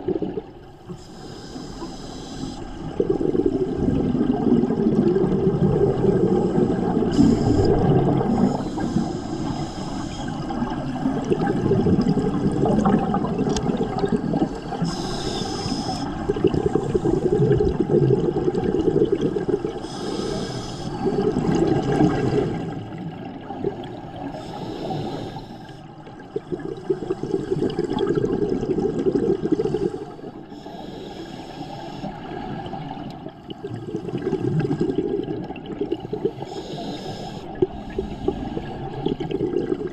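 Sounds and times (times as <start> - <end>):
exhaled air bubbling: 0.0 - 39.9
regulator inhalation hiss: 1.0 - 2.8, 8.3 - 10.4, 14.8 - 16.2, 19.8 - 21.0, 24.4 - 25.8, 29.8 - 32.2, 36.4 - 38.7.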